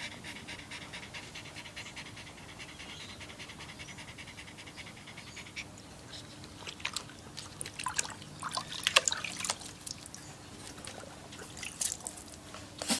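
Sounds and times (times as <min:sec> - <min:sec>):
water splashing in a plastic tub: 0:06.6 - 0:12.4.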